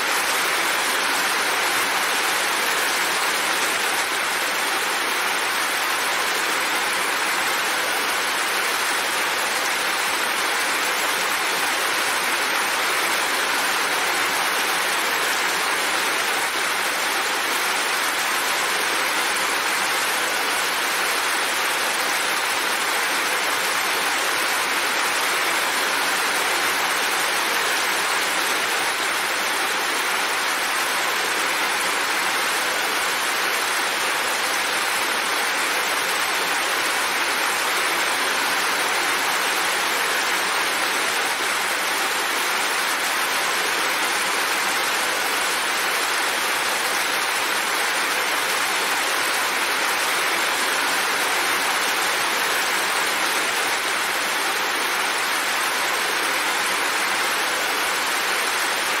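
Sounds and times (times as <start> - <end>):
heavy rain falling: 0.0 - 59.0.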